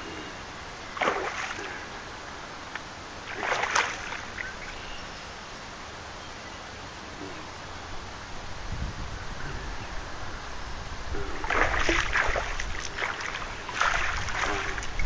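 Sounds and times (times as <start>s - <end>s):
fish thrashing water splashing: 1.0s - 1.8s, 3.3s - 4.5s, 11.4s - 15.0s.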